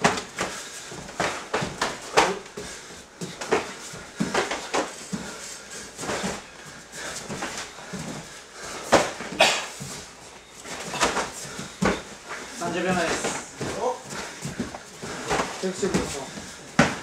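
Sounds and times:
punches and kicks landing: 10.9s - 12.1s, 16.7s - 17.0s.

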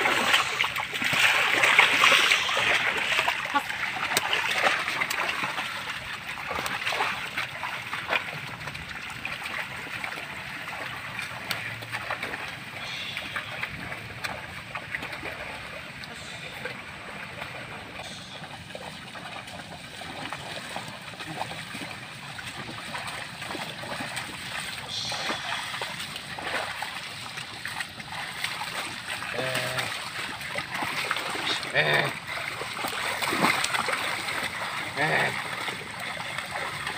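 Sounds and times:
steady watery hiss: 0.0s - 5.1s, 12.7s - 14.2s, 15.9s - 19.3s, 23.8s - 27.5s
wet splashes and sloshing: 0.0s - 36.9s.

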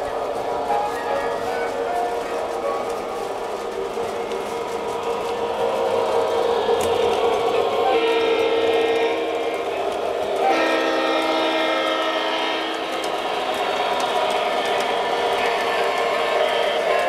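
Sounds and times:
model train running: 0.0s - 17.0s
model train horn blasts: 7.9s - 9.5s, 10.4s - 13.2s.

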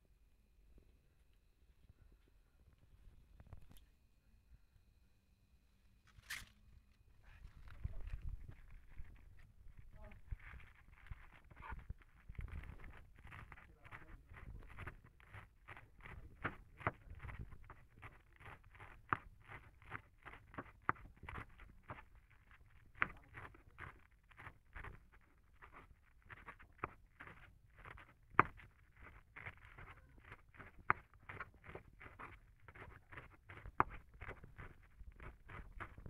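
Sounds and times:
knife chopping on plastic board: 14.3s - 22.2s, 25.6s - 36.0s.

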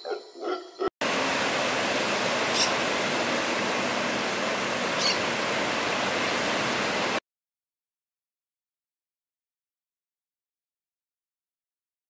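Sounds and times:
ocean surf breaking: 1.0s - 7.2s.

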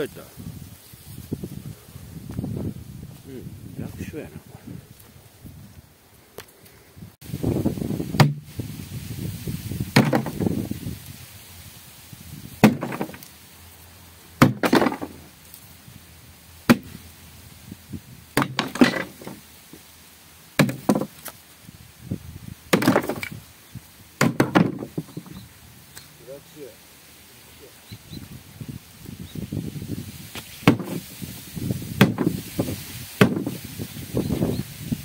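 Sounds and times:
tub wall cracking: 9.9s - 10.5s, 12.6s - 13.3s, 14.4s - 15.3s, 16.7s - 17.0s, 18.4s - 19.5s, 20.6s - 21.4s, 22.7s - 23.4s, 24.2s - 25.4s, 30.6s - 31.1s, 32.0s - 32.4s, 33.2s - 33.6s.

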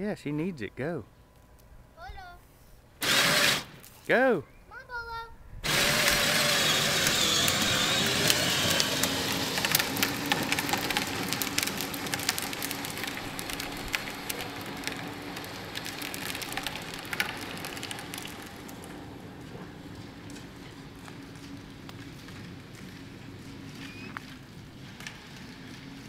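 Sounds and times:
electric motor whining: 3.0s - 3.8s, 5.6s - 21.2s
plastic wheels rattling on asphalt: 5.6s - 26.0s.

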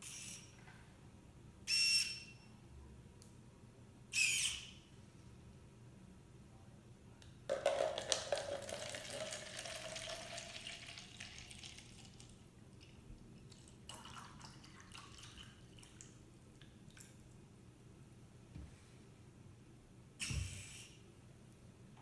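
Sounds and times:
small water splashes: 7.5s - 12.9s
water pouring into cup: 7.5s - 16.2s.

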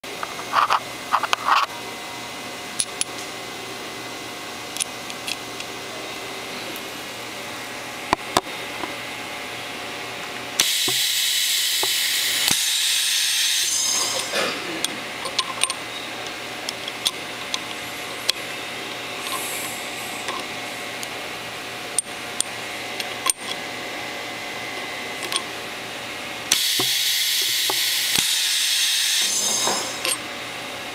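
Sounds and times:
steady shop hum: 0.0s - 30.9s
small metal clicks: 15.2s - 15.8s, 25.2s - 25.5s
compressed air hiss: 19.2s - 20.3s, 26.5s - 30.0s.

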